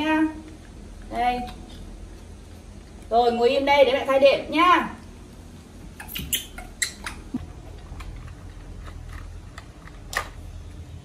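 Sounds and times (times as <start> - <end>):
faint low hum: 0.0 - 11.0
plastic toys clicking on tile floor: 6.0 - 10.4.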